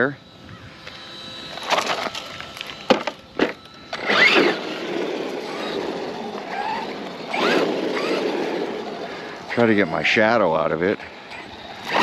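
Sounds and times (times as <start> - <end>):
electric motor whine: 0.0 - 12.0
tires rolling on asphalt: 0.8 - 12.0
toy truck knocks and clatters: 1.6 - 4.6.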